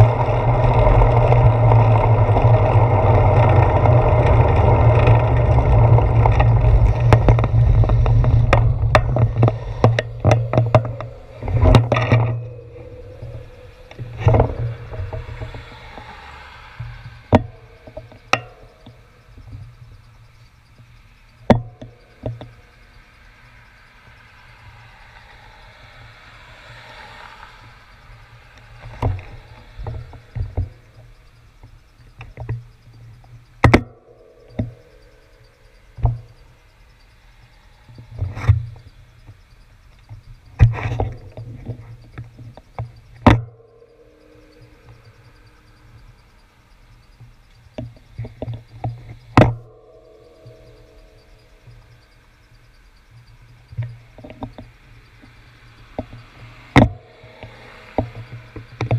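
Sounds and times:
faint traffic noise: 0.0s - 58.9s.

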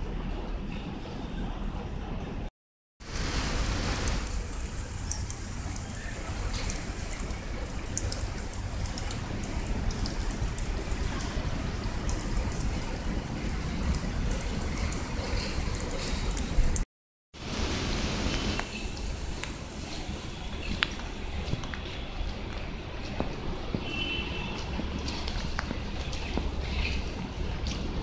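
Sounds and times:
rain on plants and grass: 3.0s - 16.8s, 17.4s - 28.0s.

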